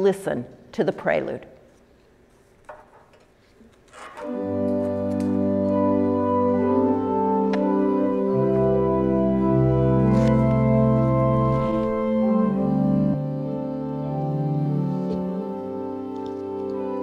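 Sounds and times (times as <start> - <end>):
pipe organ chords: 4.2 - 17.0
deep organ pedal bass: 5.7 - 15.4.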